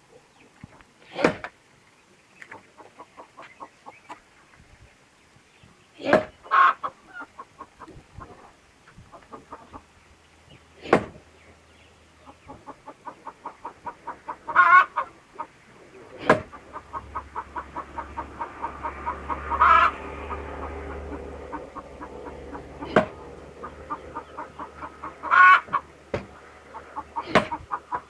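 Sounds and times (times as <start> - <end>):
axe chopping log: 1.2 - 1.5, 6.0 - 6.4, 10.8 - 11.2, 16.2 - 16.6, 22.9 - 23.2, 27.2 - 27.6
hen clucking: 2.4 - 4.6, 6.0 - 28.0.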